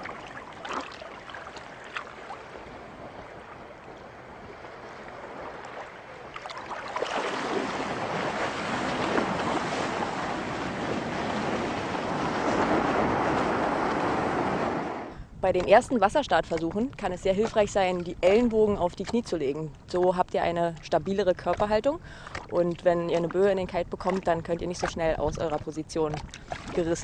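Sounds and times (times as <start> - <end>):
light water splashes: 0.0 - 12.7, 15.6 - 27.0
sea water washing: 0.0 - 15.8, 21.5 - 27.0
wind rushing over microphone: 7.1 - 19.0, 23.0 - 27.0.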